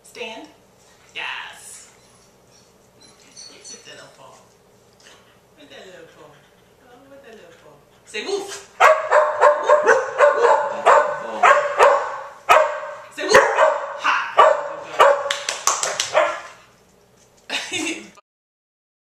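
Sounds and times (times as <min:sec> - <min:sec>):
dog barking: 0:08.8 - 0:16.6.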